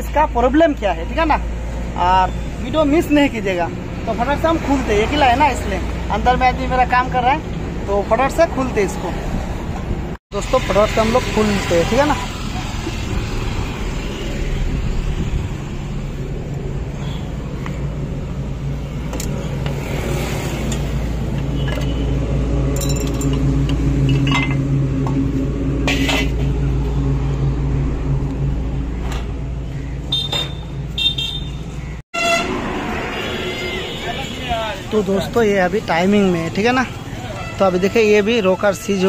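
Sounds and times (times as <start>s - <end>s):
vehicle engine humming: 0.0s - 39.0s.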